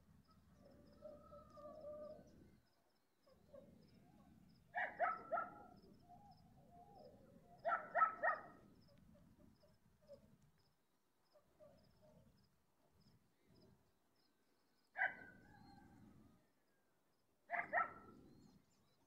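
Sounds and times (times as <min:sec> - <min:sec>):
dog barking: 0:04.7 - 0:05.8, 0:07.6 - 0:08.6, 0:15.0 - 0:15.4, 0:17.5 - 0:18.2.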